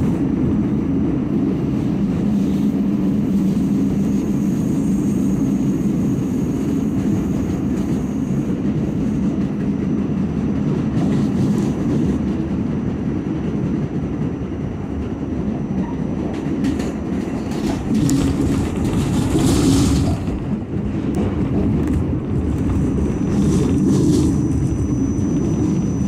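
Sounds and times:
subway wheels rumbling on rail: 0.0s - 26.0s
hissing rail noise: 16.6s - 26.0s.

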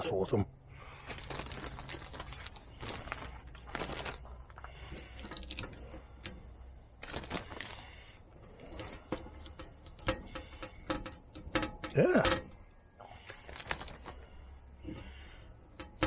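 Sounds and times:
plastic bag crinkling: 1.1s - 5.6s, 7.0s - 7.9s.

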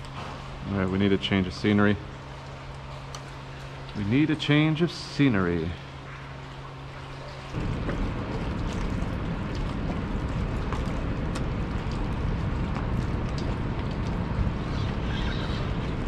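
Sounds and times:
wind rumble on microphone: 7.6s - 16.0s.

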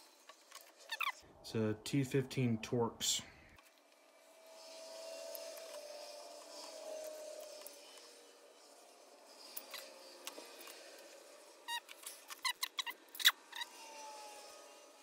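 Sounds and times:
bit driver squeaking and clicking: 0.3s - 1.2s, 11.7s - 13.8s.

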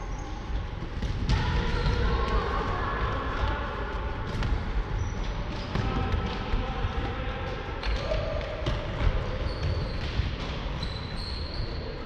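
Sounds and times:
footballs kicked and bouncing: 0.4s - 11.1s.

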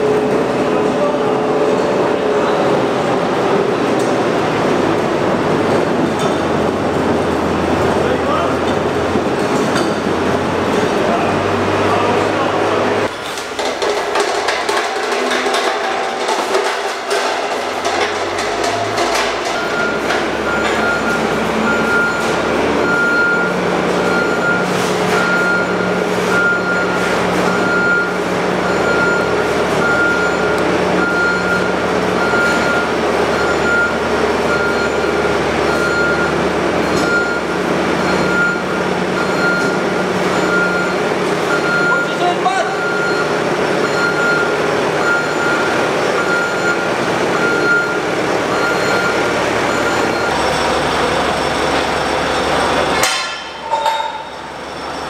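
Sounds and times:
heavy vehicle engine running: 0.0s - 55.0s
reversing alarm beeping: 17.8s - 55.0s.

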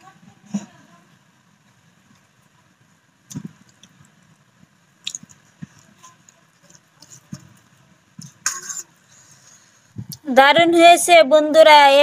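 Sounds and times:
fingers mixing food on metal plate: 5.0s - 9.0s.

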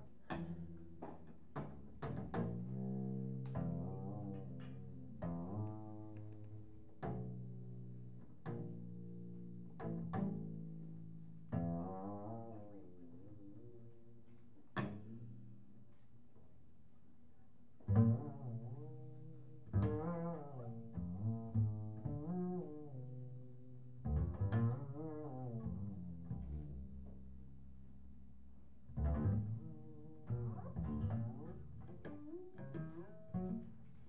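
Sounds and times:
double bass sliding notes: 1.6s - 14.1s, 17.9s - 27.8s, 28.8s - 34.0s.

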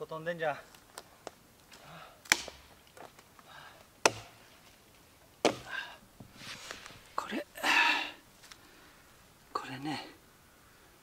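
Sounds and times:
axe chopping log: 2.2s - 2.7s, 4.0s - 4.4s, 5.4s - 5.8s.

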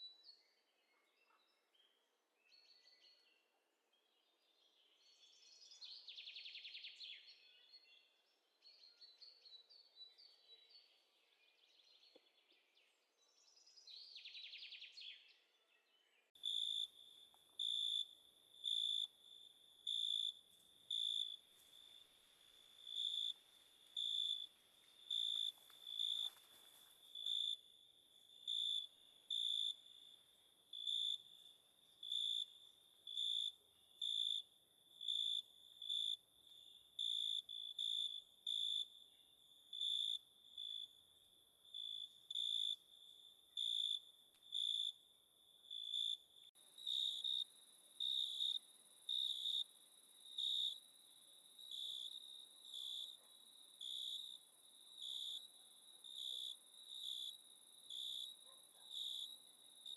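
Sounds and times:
cricket chirping: 16.4s - 59.9s.

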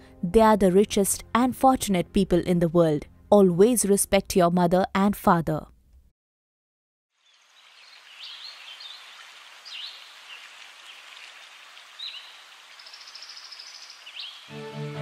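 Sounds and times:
bird chirps: 7.2s - 11.0s, 12.0s - 14.5s
bird trill: 12.0s - 14.5s.

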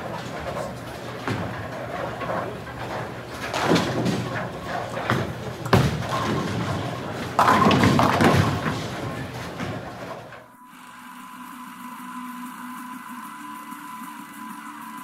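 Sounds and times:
clatter of balls: 0.0s - 10.4s
pins crashing: 0.0s - 10.4s
bowling ball thudding on lane: 0.4s - 10.3s.

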